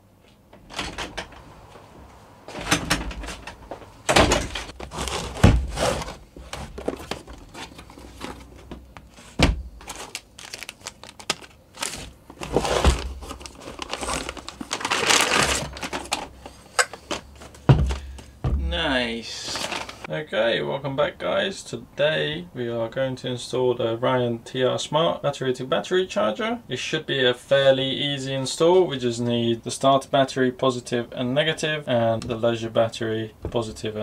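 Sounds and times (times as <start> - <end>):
cardboard flaps scraping: 4.3 - 18.7
plastic bag crinkling: 4.7 - 18.2, 19.3 - 20.1
box thudding on wooden workbench: 8.7 - 9.7, 17.7 - 18.7.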